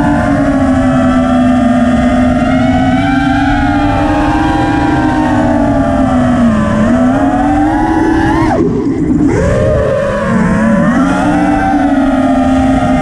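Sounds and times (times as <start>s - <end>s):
drone motors whining: 0.0s - 13.0s
wind rumbling on camera: 0.0s - 13.0s.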